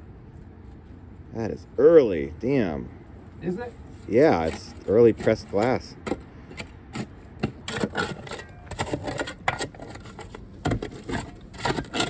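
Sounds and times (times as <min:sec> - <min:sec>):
hand tool digging into dirt: 0:04.2 - 0:12.0.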